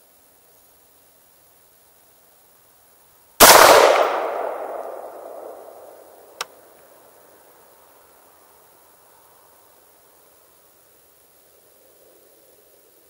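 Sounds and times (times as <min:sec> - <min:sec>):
rifle shot echoing: 0:03.4 - 0:06.1.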